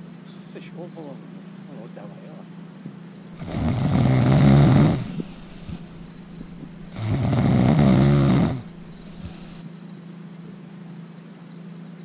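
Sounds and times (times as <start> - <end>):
faint steady hum: 0.0 - 9.7
person snoring: 3.4 - 9.6.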